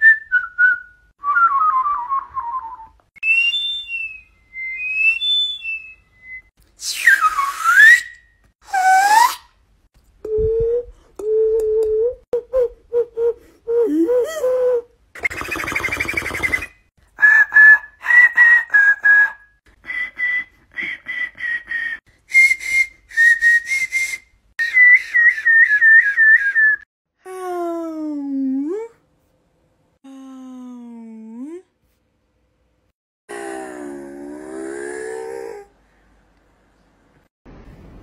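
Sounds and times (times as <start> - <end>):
mouth whistling: 0.0 - 9.4, 10.3 - 26.9.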